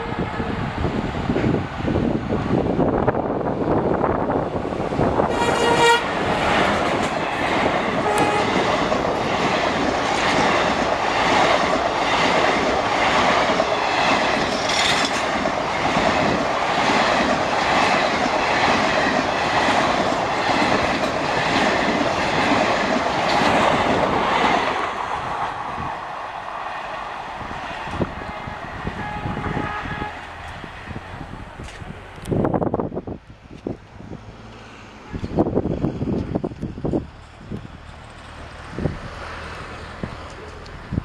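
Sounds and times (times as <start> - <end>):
locomotive horn blast: 0.0 - 0.7, 5.2 - 6.2, 8.0 - 8.7, 28.2 - 30.4
train wheels clickety-clack: 5.3 - 26.0.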